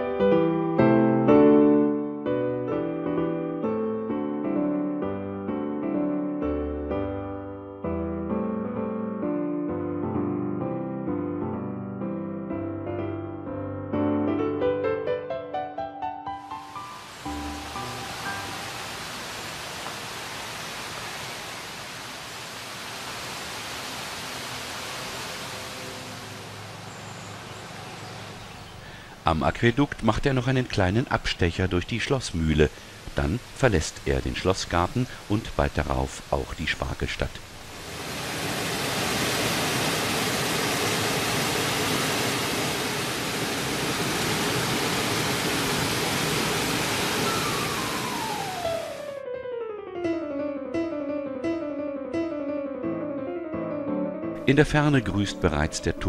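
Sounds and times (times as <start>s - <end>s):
piano music: 0.0s - 19.2s, 45.4s - 56.0s
stream water flowing: 16.5s - 49.1s.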